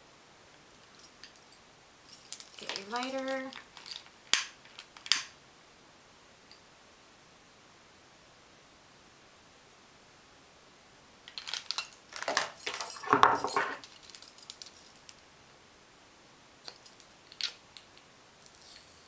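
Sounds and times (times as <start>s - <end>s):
metal tools clinking: 0.8s - 4.1s, 11.4s - 15.0s.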